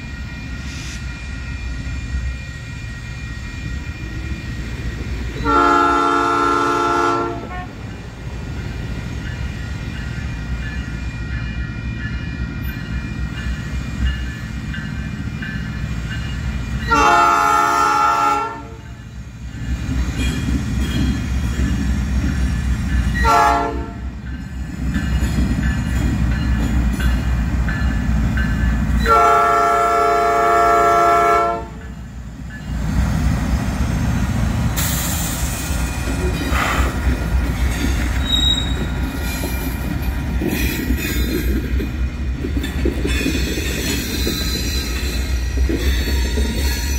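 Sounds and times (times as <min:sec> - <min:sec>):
train engine rumble: 0:00.0 - 0:46.9
locomotive horn: 0:05.4 - 0:07.8, 0:16.8 - 0:18.9, 0:23.2 - 0:24.1, 0:29.0 - 0:31.8
high wheel squeal: 0:37.6 - 0:39.8.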